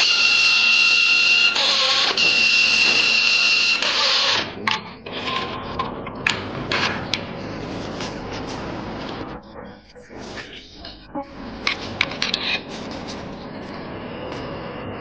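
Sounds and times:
electric screwdriver whining: 0:00.0 - 0:04.4.

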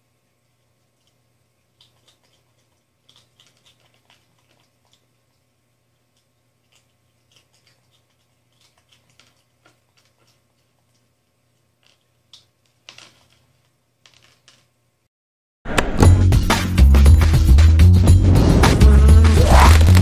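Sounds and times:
faint low hum: 0:00.0 - 0:15.1
monkey chewing cereal: 0:00.5 - 0:14.6, 0:19.2 - 0:20.0.

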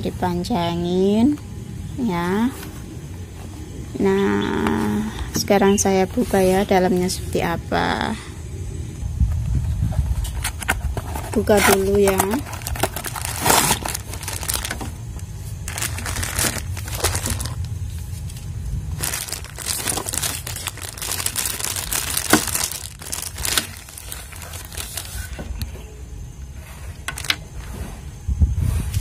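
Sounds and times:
plastic bag crinkling: 0:10.3 - 0:25.4.

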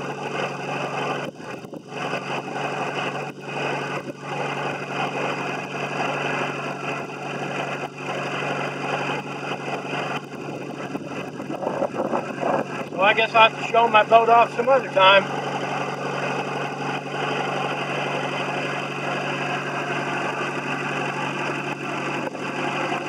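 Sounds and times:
boat engine running: 0:00.0 - 0:23.0.

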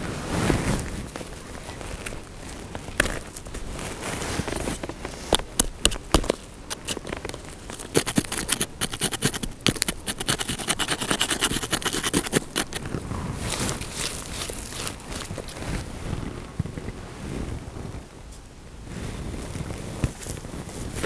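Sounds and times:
gritty crunching and scraping: 0:00.3 - 0:16.3
earth lumps knocking: 0:04.6 - 0:10.3.

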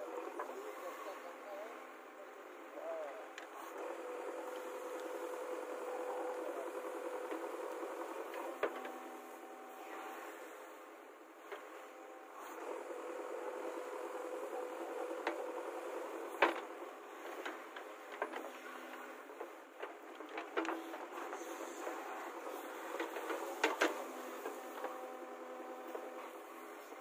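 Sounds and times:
diesel engine running: 0:02.8 - 0:10.9.

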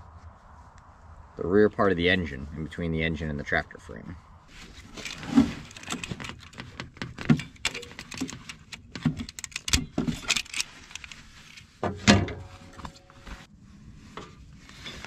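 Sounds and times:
fuel hose clicking and scraping: 0:04.5 - 0:13.5.

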